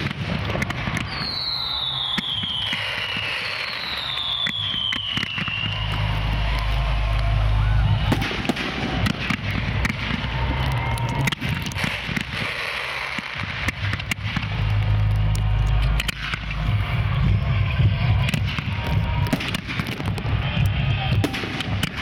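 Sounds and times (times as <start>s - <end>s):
fireworks booming and cracking: 0.0s - 22.0s
low rumble: 5.6s - 12.3s, 13.4s - 21.4s.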